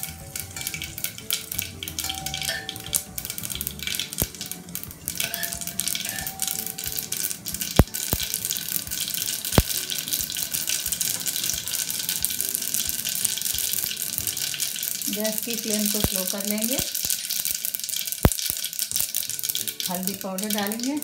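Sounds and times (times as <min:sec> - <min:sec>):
seeds sizzling in hot oil: 0:00.0 - 0:21.0
sharp pops: 0:04.0 - 0:04.5, 0:05.1 - 0:11.6, 0:15.4 - 0:19.2.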